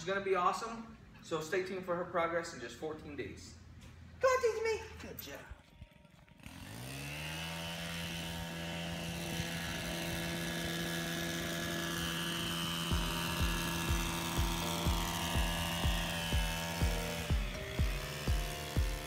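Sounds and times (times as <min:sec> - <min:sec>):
sustained synth chords: 0:10.0 - 0:19.0
kick-drum beat: 0:12.9 - 0:19.0.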